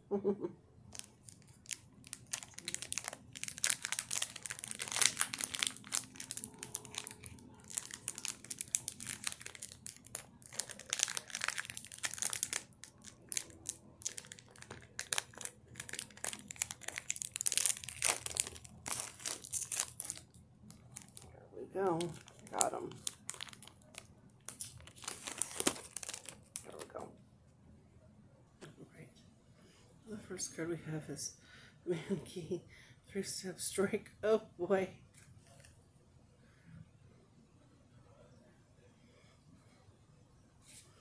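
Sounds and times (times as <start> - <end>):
foil wrapper crinkling: 0.9 - 27.0.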